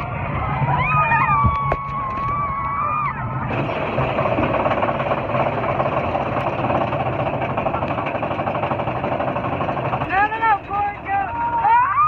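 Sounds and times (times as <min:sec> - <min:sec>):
roller coaster rattling on track: 0:00.0 - 0:12.0.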